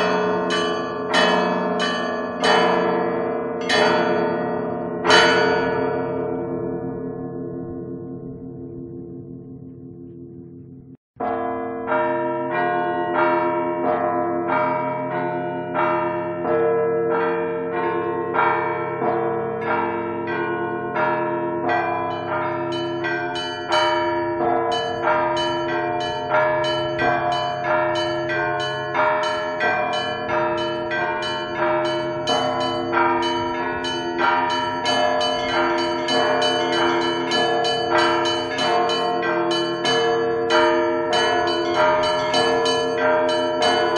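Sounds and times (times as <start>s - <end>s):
church bells ringing a peal: 0.0s - 43.9s.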